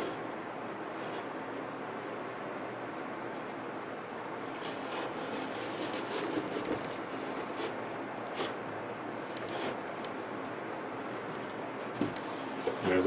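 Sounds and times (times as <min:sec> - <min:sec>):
soft rustling and scraping: 0:04.4 - 0:08.6, 0:11.0 - 0:13.0.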